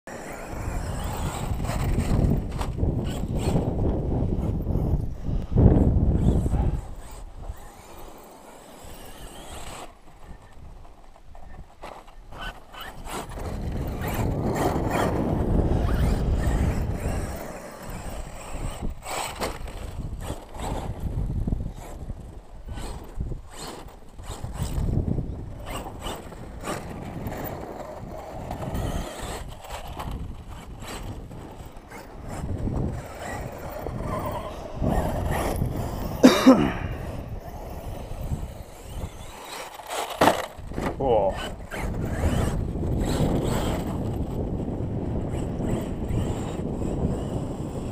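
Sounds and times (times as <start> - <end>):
wind gusting on microphone: 0.1 - 47.9.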